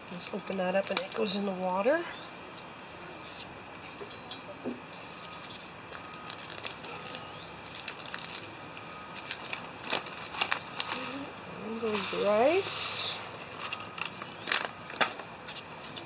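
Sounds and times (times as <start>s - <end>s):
foil packet crinkling: 0.5s - 1.4s, 5.2s - 16.0s.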